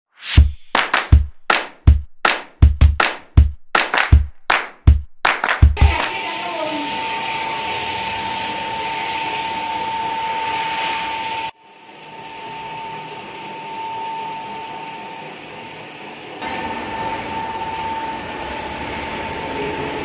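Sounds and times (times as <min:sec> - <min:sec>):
oil extraction machine whining: 0:16.2 - 0:20.0.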